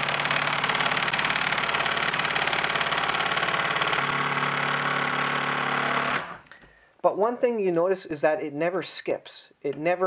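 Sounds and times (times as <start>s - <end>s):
impact driver hammering: 0.0s - 6.4s.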